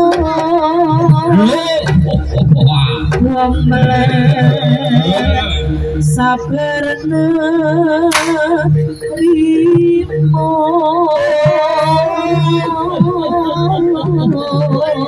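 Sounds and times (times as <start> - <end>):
sharp crack: 8.1 - 8.6
gamelan music: 8.1 - 9.6.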